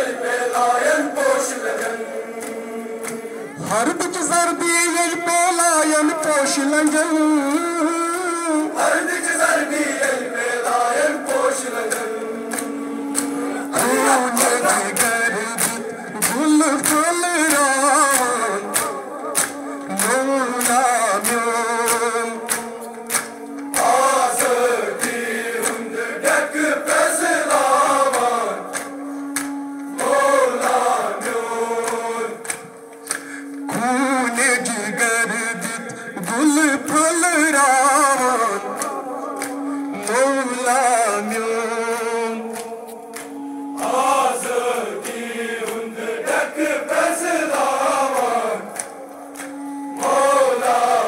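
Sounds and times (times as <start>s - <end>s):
crowd chanting: 0.0s - 3.8s, 8.6s - 16.8s, 22.0s - 28.8s, 30.0s - 32.6s, 43.8s - 51.0s
man singing an elegy: 3.6s - 8.8s, 13.8s - 22.5s, 33.6s - 42.5s.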